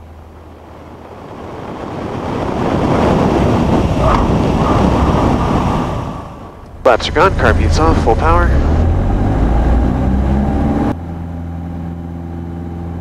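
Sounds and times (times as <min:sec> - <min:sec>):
wind rushing over camera: 0:00.0 - 0:10.2.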